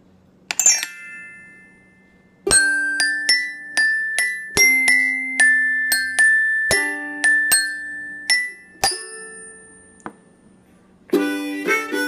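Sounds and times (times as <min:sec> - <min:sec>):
glockenspiel melody: 0:00.5 - 0:10.4.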